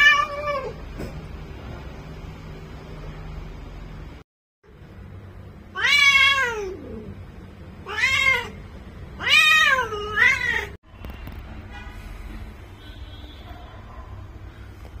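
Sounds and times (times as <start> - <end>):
cat meowing: 0.0 - 0.8, 5.7 - 7.2, 7.8 - 8.6, 9.2 - 10.8.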